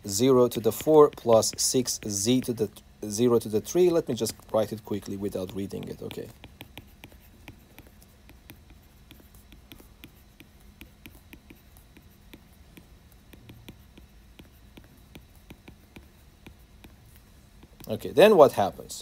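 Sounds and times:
faint steady hum: 0.0s - 19.0s
stylus tapping on glass screen: 4.3s - 17.0s, 17.6s - 18.0s.

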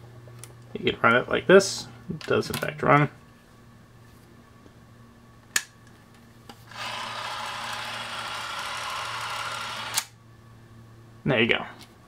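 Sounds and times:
cine camera mechanism whirring: 6.6s - 10.2s.

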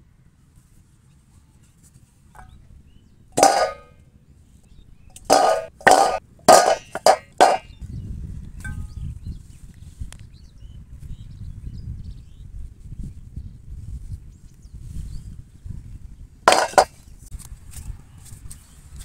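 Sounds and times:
metal bowl clanging: 2.4s - 4.0s, 5.0s - 7.7s, 16.5s - 16.9s.

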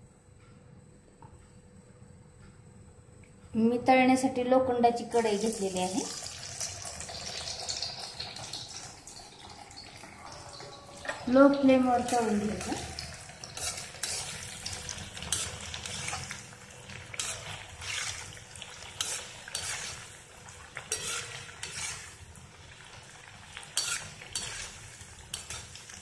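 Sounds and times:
frying in hot oil sizzling: 5.0s - 26.0s
metal spoon scraping iron pan: 13.5s - 16.4s, 17.1s - 20.1s, 20.8s - 22.2s, 23.7s - 25.8s.

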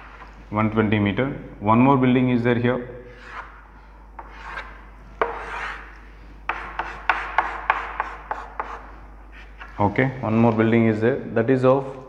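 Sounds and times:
chalk scraping on chalkboard: 3.1s - 3.6s, 4.2s - 9.8s.

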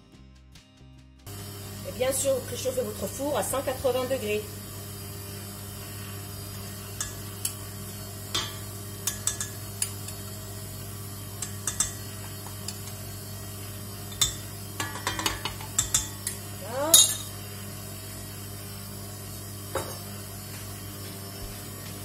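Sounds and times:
steady low hum: 1.3s - 22.0s
metal spoon clinking on bowls: 8.3s - 9.6s, 11.4s - 12.1s, 14.1s - 17.4s.

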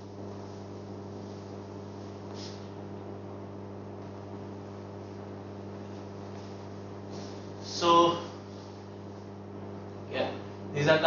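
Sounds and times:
electrical mains hum: 0.0s - 11.0s
short soft hiss: 1.2s - 2.8s, 6.3s - 7.8s.

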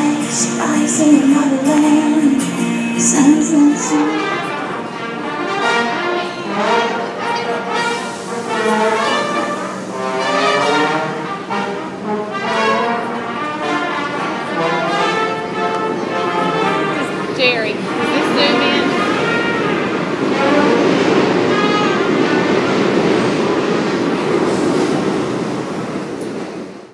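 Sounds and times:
woman singing with acoustic guitar: 0.0s - 4.8s
brass instruments playing lively tune: 3.8s - 22.3s.

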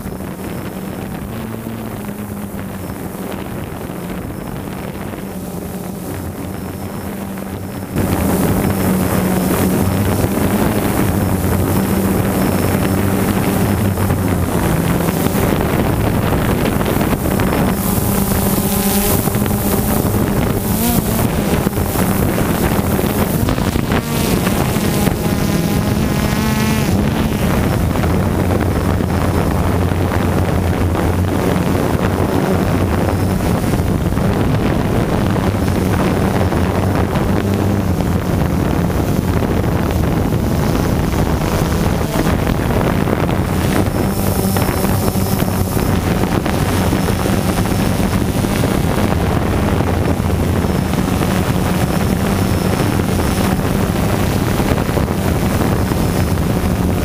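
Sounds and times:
drone propellers buzzing: 0.0s - 57.0s.

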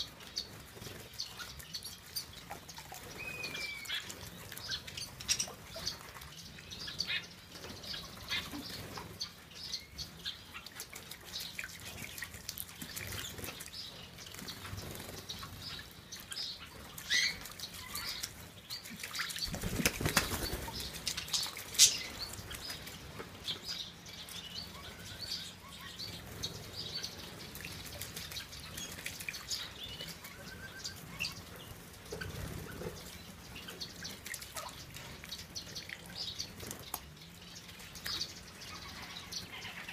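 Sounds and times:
bird wings fluttering: 19.0s - 21.0s.

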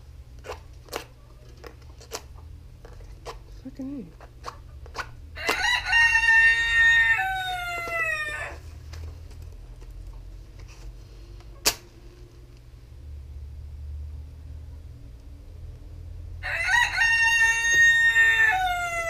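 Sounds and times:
rooster crowing: 5.4s - 8.6s, 16.4s - 19.0s.

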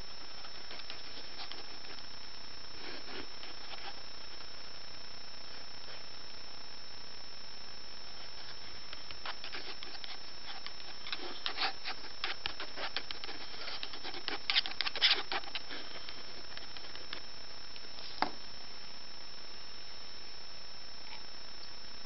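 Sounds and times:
pen scratching on paper: 0.2s - 2.0s, 2.8s - 4.4s, 8.2s - 17.2s.

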